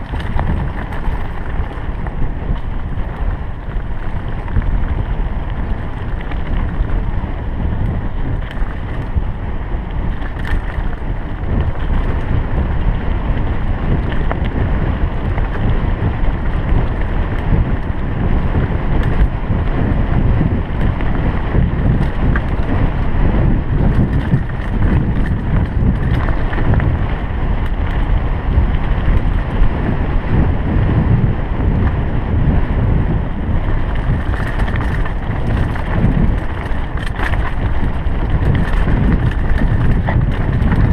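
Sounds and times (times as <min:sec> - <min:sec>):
clicks and rattles of stones: 0:00.0 - 0:07.1, 0:07.8 - 0:09.2, 0:10.1 - 0:12.3, 0:21.9 - 0:22.7, 0:23.9 - 0:27.0, 0:33.8 - 0:40.9
bike tyres rumbling on gravel: 0:00.0 - 0:40.9
wind buffeting microphone: 0:00.0 - 0:40.9.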